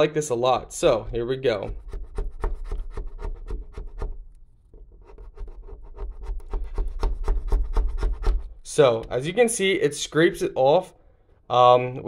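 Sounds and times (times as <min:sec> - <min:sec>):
plastic blade scraping tape: 0:01.6 - 0:09.3.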